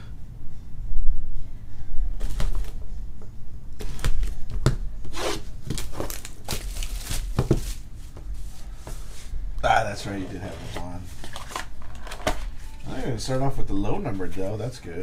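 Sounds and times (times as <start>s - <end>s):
plastic wrapping tearing and crinkling: 3.8s - 7.9s.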